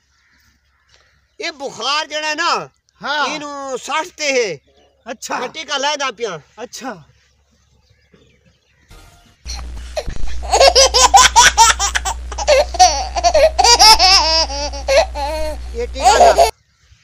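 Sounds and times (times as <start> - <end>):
steady low hum: 8.9 - 16.5.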